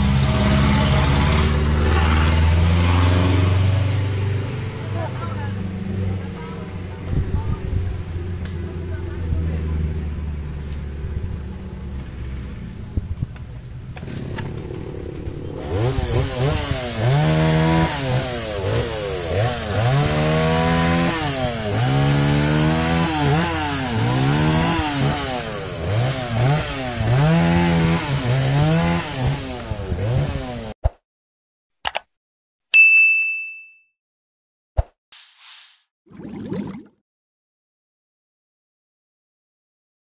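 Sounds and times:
chainsaw revving: 0.0s - 4.6s, 13.9s - 30.8s
click: 31.8s - 32.1s
short bell-like ding: 32.8s - 34.0s.

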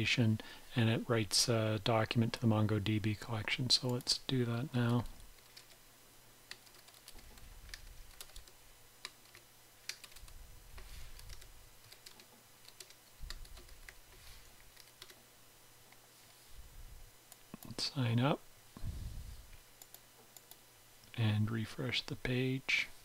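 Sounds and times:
typing on a keyboard: 6.5s - 10.4s, 11.2s - 14.0s.

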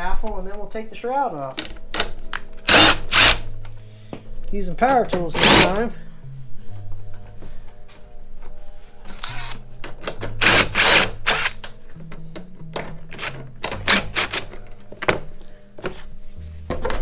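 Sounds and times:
background music bass line: 0.0s - 17.0s
power driver bursts: 2.6s - 3.5s, 13.2s - 14.5s.

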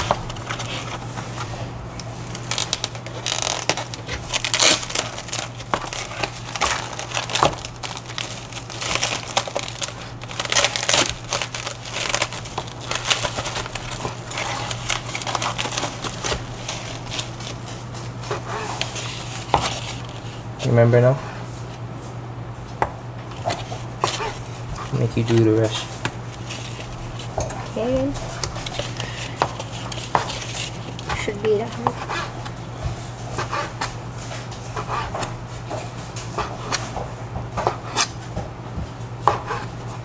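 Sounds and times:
plastic packaging crinkling: 0.0s - 1.4s, 2.0s - 20.4s, 23.3s - 31.8s
steady low hum: 0.0s - 40.0s.

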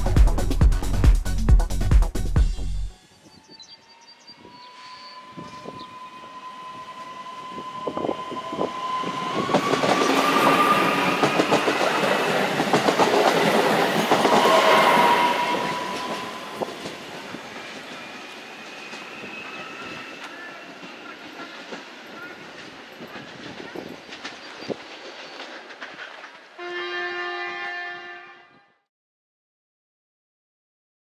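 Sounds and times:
train electric whine: 3.0s - 22.7s
train wheels rumbling on rail: 5.3s - 26.6s.

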